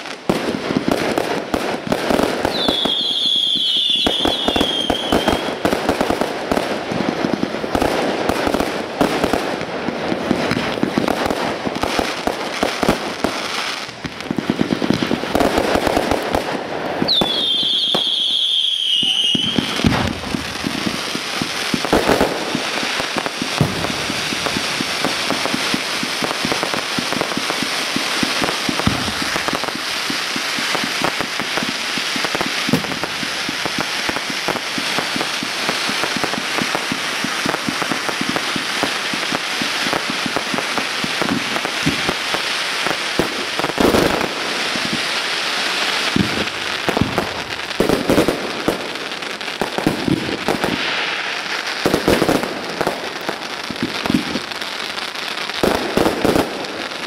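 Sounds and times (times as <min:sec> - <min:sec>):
fireworks crackling pops: 0:00.0 - 0:57.0
firework shells bursting: 0:12.4 - 0:42.3.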